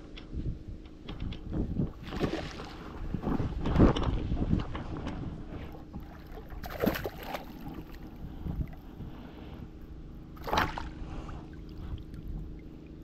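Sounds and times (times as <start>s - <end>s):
steady wind: 0.0s - 13.0s
lapping water: 5.6s - 8.9s
fish splashing at surface: 6.5s - 7.8s.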